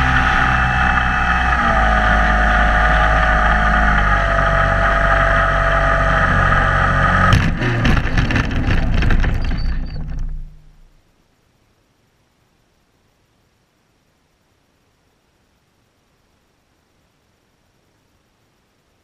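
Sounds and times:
wheels bumping over grass: 0:07.2 - 0:10.9.

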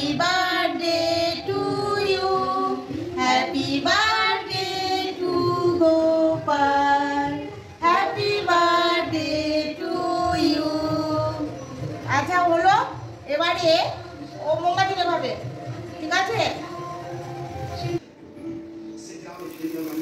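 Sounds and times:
two women singing: 0:00.0 - 0:11.7.

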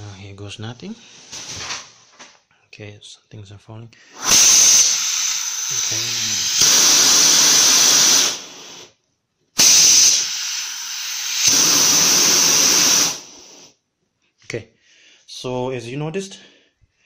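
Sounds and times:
compressed air hissing: 0:04.1 - 0:09.0, 0:09.6 - 0:13.8.

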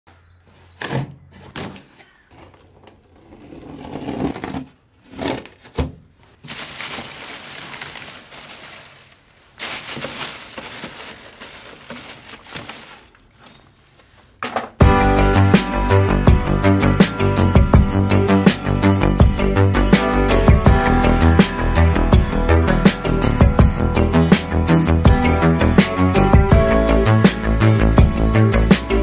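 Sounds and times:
knife slitting packing tape: 0:03.2 - 0:05.9
plastic bag rustling: 0:03.8 - 0:14.4.

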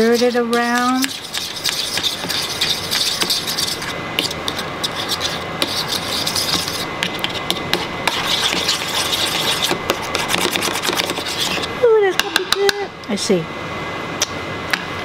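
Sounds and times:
utensil scraping a bowl: 0:00.0 - 0:11.7.

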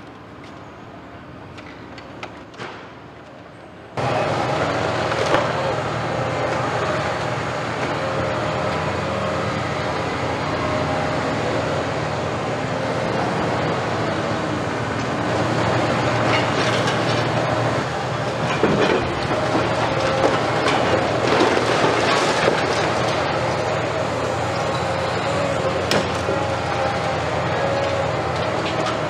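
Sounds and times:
diesel engine hum: 0:03.5 - 0:29.0
demolition debris clattering: 0:16.2 - 0:17.6, 0:18.2 - 0:23.6
hydraulic whine: 0:22.5 - 0:29.0.

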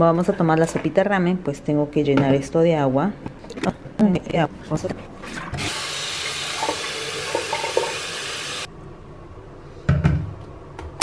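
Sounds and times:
tap water filling a container: 0:05.2 - 0:08.7.

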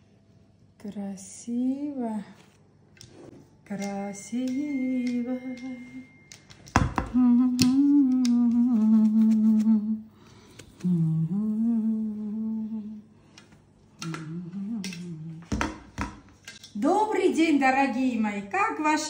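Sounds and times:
woman humming: 0:07.0 - 0:10.2, 0:10.8 - 0:13.1, 0:14.0 - 0:15.6.

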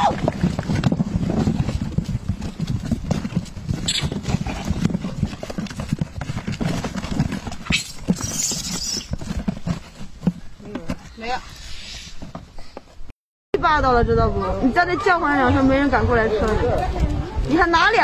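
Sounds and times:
monkeys scrabbling in cardboard box: 0:00.0 - 0:13.0.

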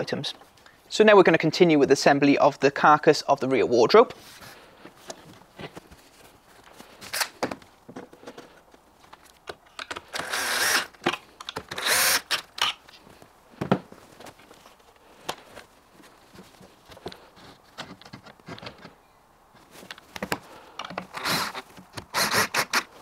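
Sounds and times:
cordless drill running: 0:10.1 - 0:11.0, 0:11.7 - 0:12.4, 0:21.1 - 0:22.9.

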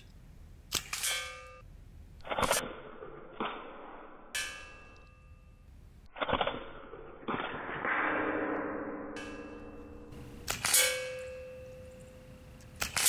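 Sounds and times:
pellet rifle shots: 0:10.1 - 0:11.4, 0:12.8 - 0:13.0.

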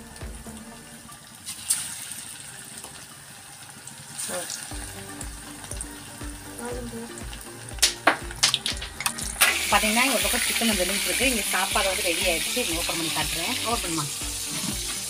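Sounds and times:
soft low thumps: 0:00.0 - 0:00.7
chicken deep-frying in oil: 0:00.0 - 0:15.0
piece dropped into oil crackling: 0:07.8 - 0:09.6.

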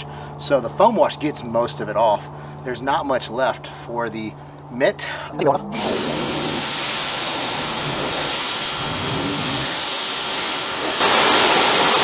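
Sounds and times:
pressure washer spray hissing: 0:05.8 - 0:12.0.

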